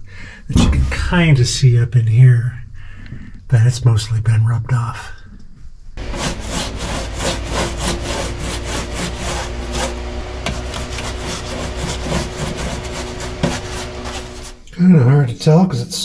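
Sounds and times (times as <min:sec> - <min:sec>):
steady low hum: 0:05.5 - 0:15.2
paint brush scrubbing metal: 0:06.0 - 0:14.7.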